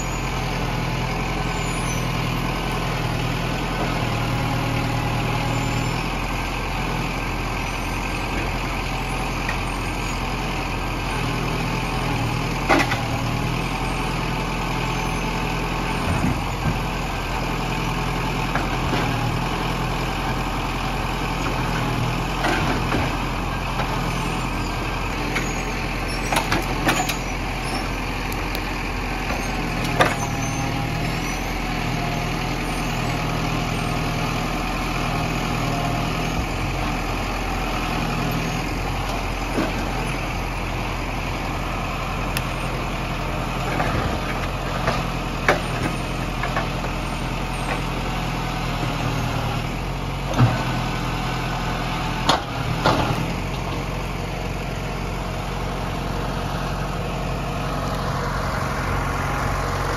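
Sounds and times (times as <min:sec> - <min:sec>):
tractor diesel engine running: 0:00.0 - 0:59.9
crane knocking logs: 0:16.0 - 0:17.3, 0:42.3 - 0:48.1.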